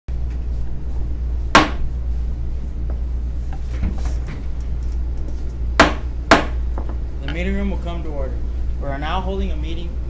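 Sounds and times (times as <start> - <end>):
steady low hum: 0.1 - 10.0
sharp knocks: 1.6 - 1.8, 5.8 - 6.6.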